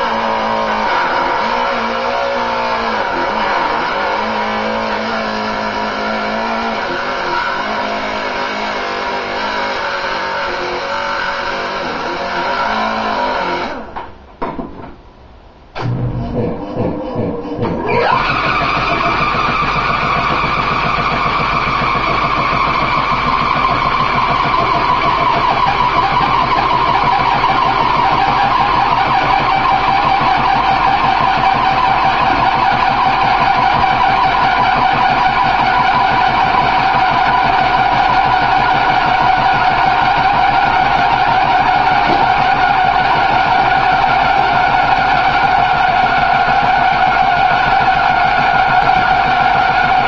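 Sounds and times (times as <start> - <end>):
machine motor whining: 0.0 - 14.0, 15.8 - 50.0
fast low pulsing: 15.8 - 50.0.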